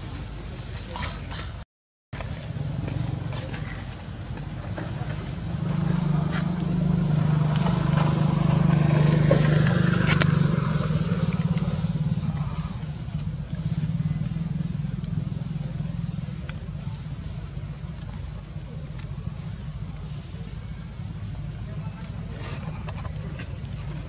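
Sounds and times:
passing vehicle engine: 2.3s - 16.7s.

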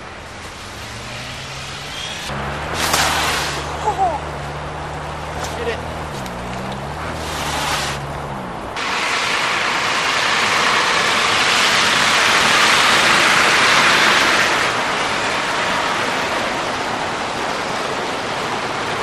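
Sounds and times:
heavy vehicles passing: 0.0s - 19.0s
highway traffic hiss: 0.0s - 19.0s.

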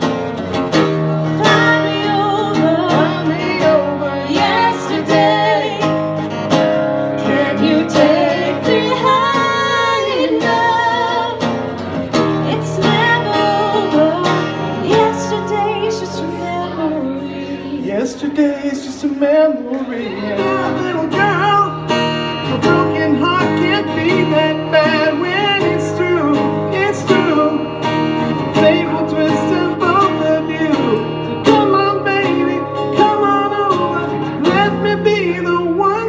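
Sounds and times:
strummed acoustic guitar: 0.0s - 36.0s
woman singing with vibrato: 1.3s - 6.1s, 7.2s - 11.5s, 12.4s - 17.8s.

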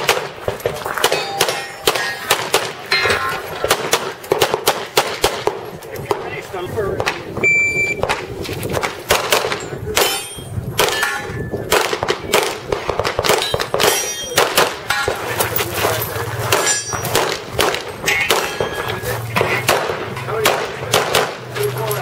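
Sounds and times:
handgun shots: 0.0s - 6.2s, 8.0s - 11.1s, 11.7s - 15.2s, 16.5s - 21.5s
steel targets ringing: 1.0s - 3.7s, 9.5s - 11.6s, 13.3s - 22.0s.

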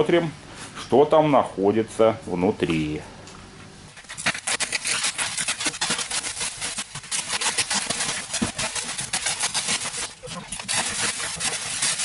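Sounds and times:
plastic sack crackling rustle: 4.0s - 12.0s.

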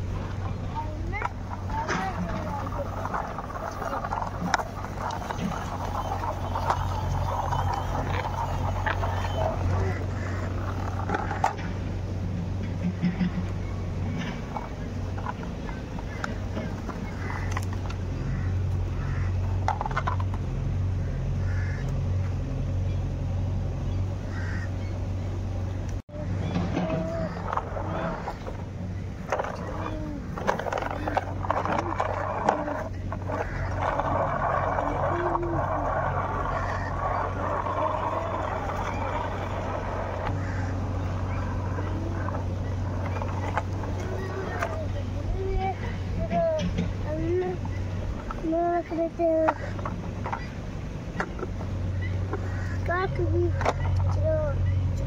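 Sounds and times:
engine-like drone: 0.0s - 55.0s
steady low hum: 0.0s - 55.0s
plastic toy car clattering: 1.1s - 11.7s, 19.6s - 20.4s, 26.5s - 28.6s, 29.2s - 50.6s, 52.3s - 54.3s.

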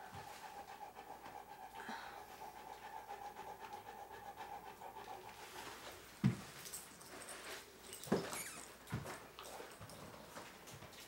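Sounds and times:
dog panting: 0.0s - 6.1s.

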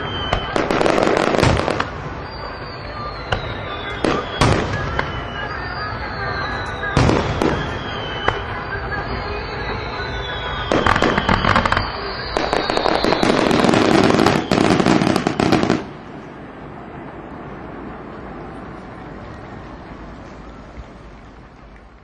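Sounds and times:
falling firework whistles: 0.0s - 16.3s
firework bangs: 0.0s - 20.7s
firework crackling: 0.0s - 22.0s.

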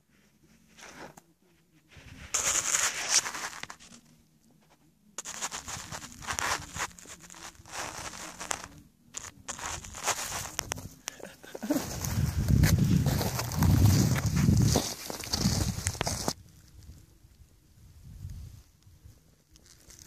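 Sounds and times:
snow crunching and scraping: 2.0s - 4.0s, 5.2s - 16.4s.

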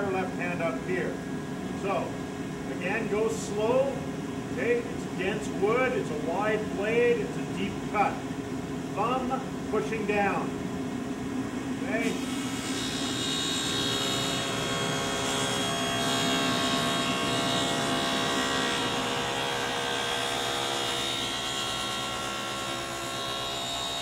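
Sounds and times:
table saw cutting wood: 12.0s - 24.0s.

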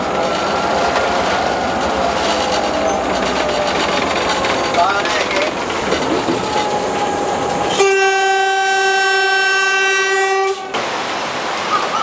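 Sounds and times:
locomotive rumble: 0.0s - 12.0s
locomotive horn blast: 7.0s - 10.8s.

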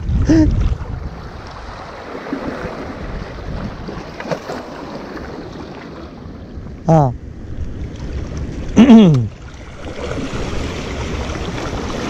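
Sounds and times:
wind on microphone: 0.0s - 4.2s
water lapping against rocks: 0.5s - 6.2s, 7.6s - 12.0s.

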